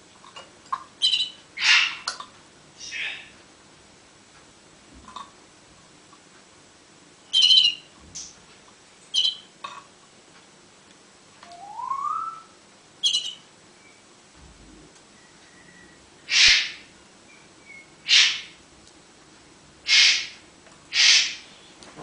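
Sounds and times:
canary calls: 0:01.0 - 0:02.1, 0:07.3 - 0:08.3, 0:09.1 - 0:09.5, 0:11.6 - 0:13.5, 0:15.8 - 0:18.6, 0:19.8 - 0:21.6.

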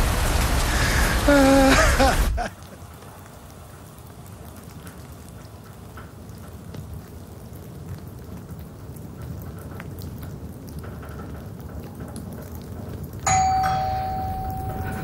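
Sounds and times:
raindrops ticking: 0:00.0 - 0:15.0
low rumble: 0:13.5 - 0:15.0.

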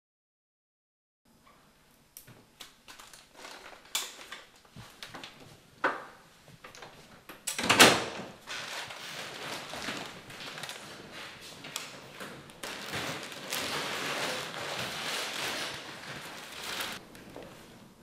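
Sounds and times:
rustling: 0:02.9 - 0:05.6, 0:08.5 - 0:18.0
wooden door clattering open: 0:07.6 - 0:08.4.

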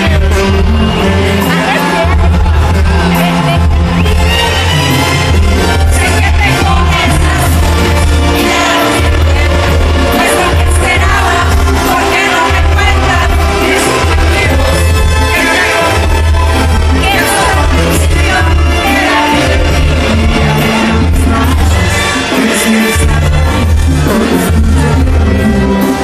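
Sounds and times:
brass band music: 0:00.0 - 0:26.0
person singing: 0:05.3 - 0:26.0.

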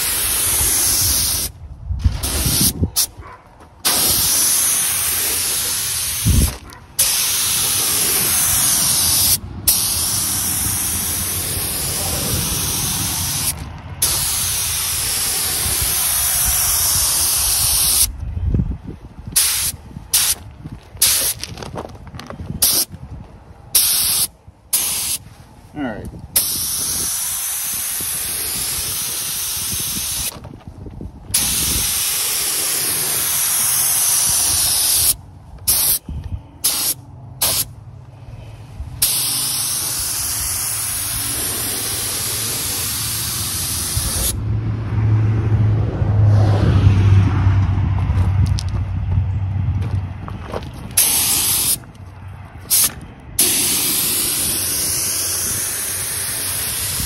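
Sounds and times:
spray gun hissing: 0:00.0 - 0:01.6, 0:03.8 - 0:18.1, 0:19.4 - 0:20.4, 0:23.8 - 0:25.2, 0:26.4 - 0:30.3, 0:31.4 - 0:36.0, 0:36.6 - 0:37.7, 0:39.0 - 0:44.4, 0:51.0 - 0:51.8, 0:52.7 - 0:57.0.

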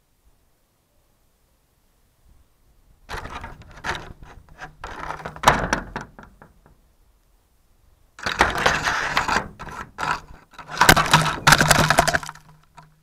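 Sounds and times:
plastic object scraping and knocking: 0:03.1 - 0:06.6, 0:08.2 - 0:12.9.

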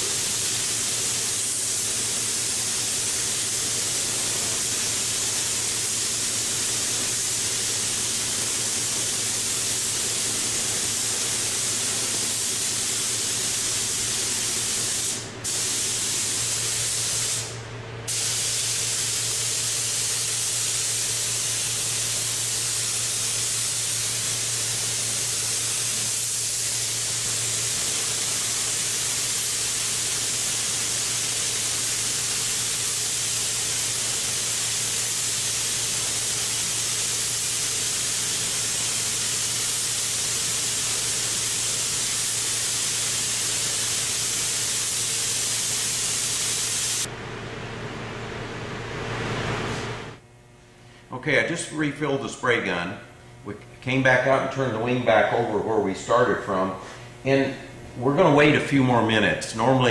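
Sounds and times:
spray gun hissing: 0:00.0 - 0:47.1
exhaust fan hum: 0:00.0 - 0:59.9.

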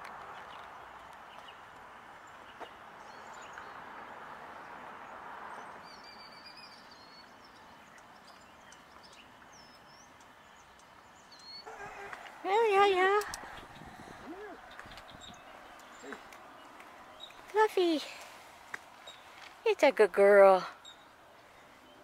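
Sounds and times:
bird chirps: 0:05.6 - 0:18.2.

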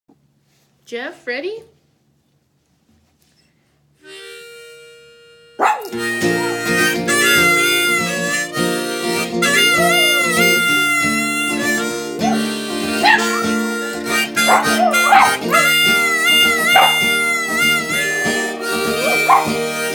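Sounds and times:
acoustic guitar strumming: 0:04.0 - 0:19.9
harmonica: 0:04.0 - 0:19.9
small dog howling: 0:05.6 - 0:08.1, 0:12.2 - 0:13.6, 0:14.4 - 0:18.1, 0:18.9 - 0:19.7.

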